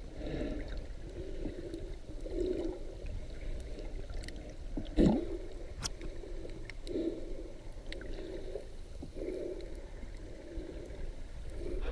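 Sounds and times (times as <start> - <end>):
muffled underwater water movement: 0.0 - 11.9
faint clicks: 5.8 - 7.0, 7.8 - 8.2.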